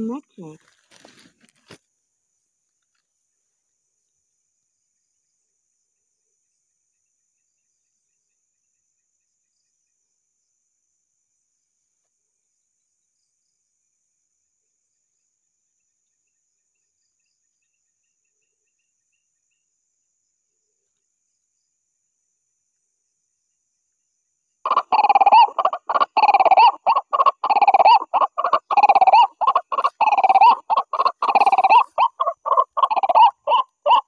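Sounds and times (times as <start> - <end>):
night insects chirring: 24.7 - 34.0.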